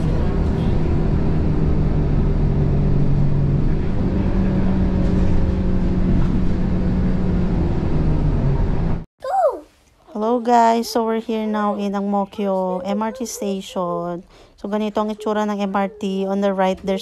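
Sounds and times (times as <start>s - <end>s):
bus engine rumbling: 0.0s - 9.1s.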